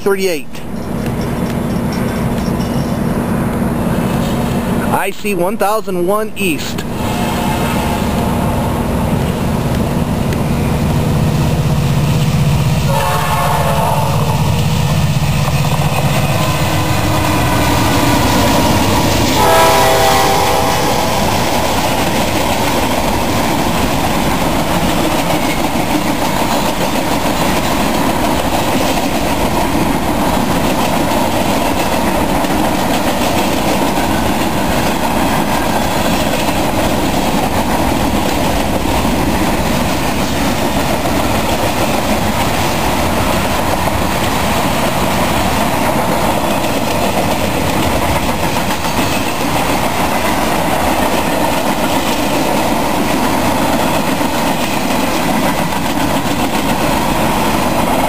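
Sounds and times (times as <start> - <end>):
locomotive engine: 0.0 - 4.9, 6.6 - 58.0
freight cars rumbling on rails: 0.0 - 58.0
train horn: 7.0 - 8.2, 12.9 - 14.5, 19.3 - 21.7.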